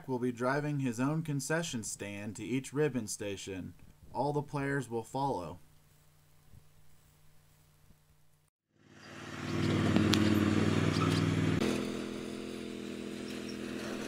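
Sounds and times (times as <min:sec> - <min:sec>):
lawn tractor engine running: 0:08.8 - 0:14.0.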